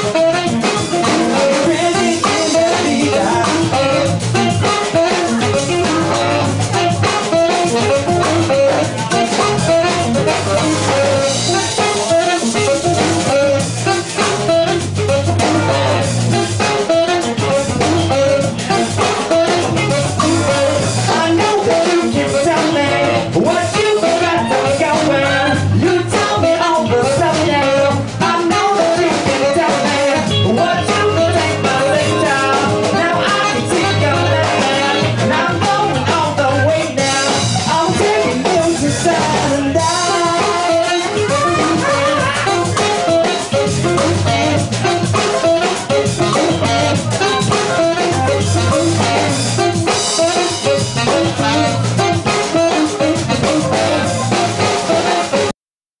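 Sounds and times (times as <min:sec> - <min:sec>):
electric bass: 0:00.0 - 0:55.5
electric guitar: 0:00.0 - 0:55.5
person singing: 0:00.0 - 0:55.5
saxophone: 0:00.0 - 0:55.5
steady drum beat: 0:00.0 - 0:55.5.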